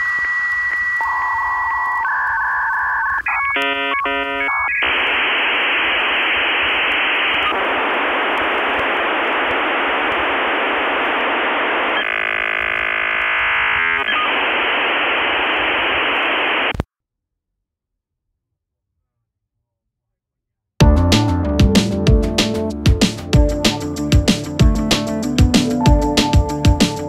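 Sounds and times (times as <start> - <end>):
static hiss: 0.0 - 16.8
modem warbling beeps: 0.5 - 8.6, 9.2 - 16.7
buzzy chord of many tones: 3.6 - 16.7.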